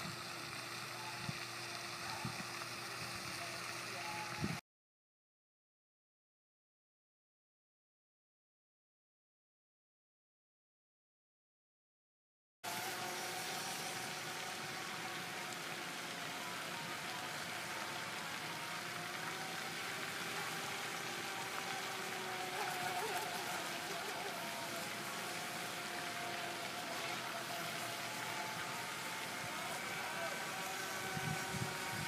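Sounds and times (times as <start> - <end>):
pond fountain splashing: 0.0 - 4.6, 12.7 - 32.0
toy boat motor whine: 0.0 - 4.6, 12.7 - 32.0.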